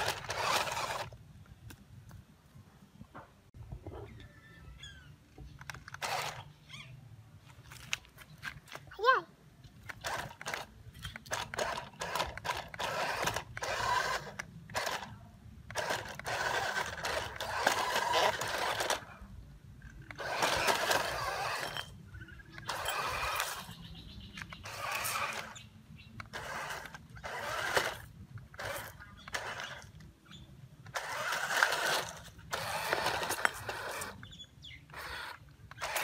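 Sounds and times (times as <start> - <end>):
small electric motor whirring: 0.0 - 1.2, 4.8 - 6.5, 9.9 - 19.1, 20.1 - 23.8, 24.4 - 30.0, 30.8 - 36.0.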